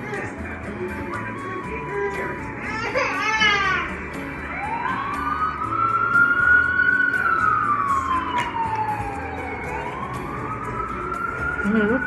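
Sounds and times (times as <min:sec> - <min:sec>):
siren wailing: 0:04.4 - 0:12.0.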